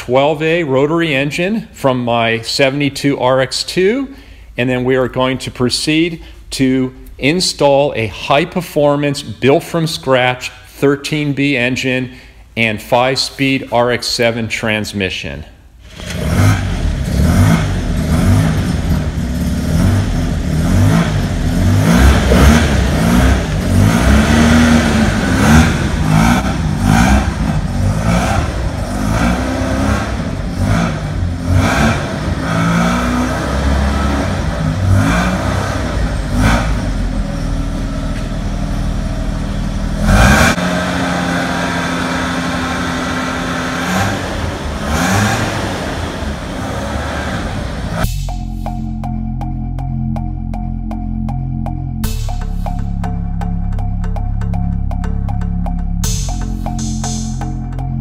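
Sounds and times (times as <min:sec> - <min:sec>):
rotary engine revving: 0:15.8 - 0:48.1.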